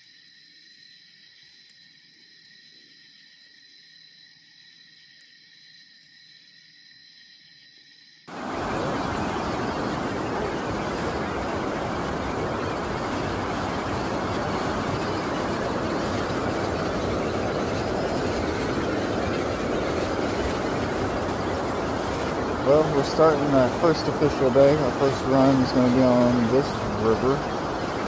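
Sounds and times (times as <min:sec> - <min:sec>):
water rushing over rocks: 0:08.3 - 0:28.0.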